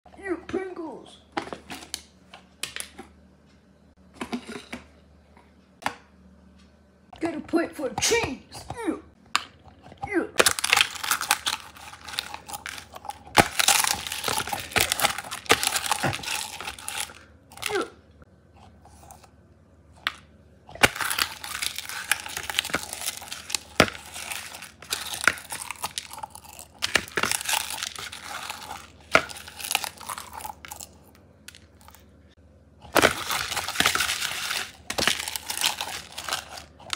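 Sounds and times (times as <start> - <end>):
crisps crunching and snapping: 9.5 - 17.9, 18.7 - 32.2, 32.8 - 36.9.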